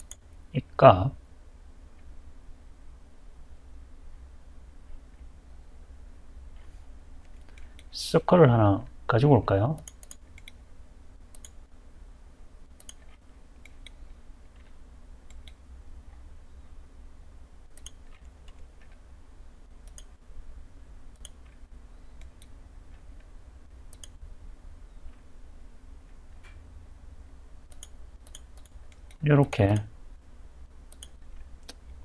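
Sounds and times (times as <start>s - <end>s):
computer mouse clicks: 0.0s - 0.3s, 6.6s - 7.9s, 9.7s - 10.6s, 11.3s - 11.6s, 12.8s - 15.6s, 17.7s - 19.0s, 19.8s - 20.1s, 21.1s - 21.6s, 22.2s - 23.3s, 23.9s - 24.2s, 27.7s - 29.9s, 30.9s - 32.0s
faint low hum: 0.0s - 32.0s.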